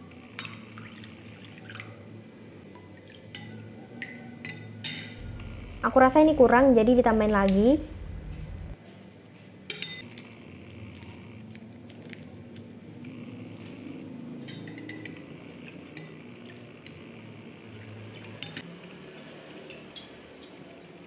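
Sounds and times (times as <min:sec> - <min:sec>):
spoon clinking against glass: 0:03.3 - 0:05.2, 0:09.7 - 0:10.0.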